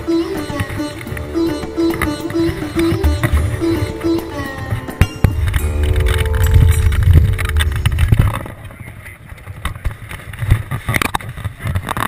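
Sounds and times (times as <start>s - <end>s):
off-road vehicle rumbling: 5.2s - 10.9s.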